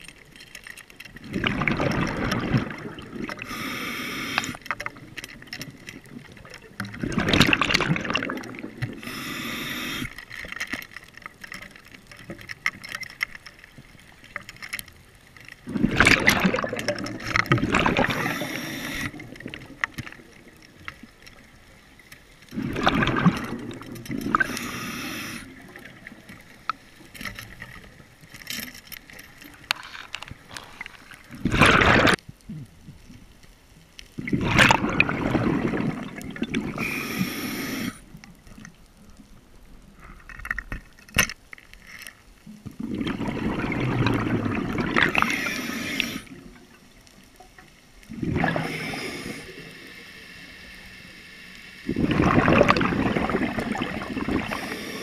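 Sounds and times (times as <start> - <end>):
exhaled bubbles rushing: 1.2 - 3.5, 6.0 - 9.1, 15.6 - 21.0, 22.5 - 26.5, 31.3 - 32.2, 34.2 - 37.0, 42.8 - 46.7, 48.1 - 49.7, 51.9 - 55.0
regulator hiss: 3.4 - 4.6, 9.0 - 10.2, 18.1 - 19.2, 24.4 - 25.6, 36.8 - 38.1, 45.1 - 46.3, 48.6 - 52.1, 54.4 - 55.0.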